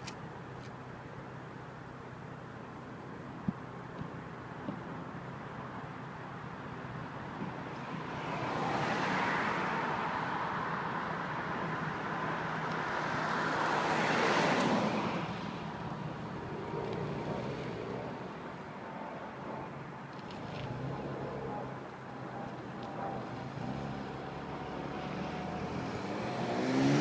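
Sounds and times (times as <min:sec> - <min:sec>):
car driving past: 0:23.3 - 0:27.0.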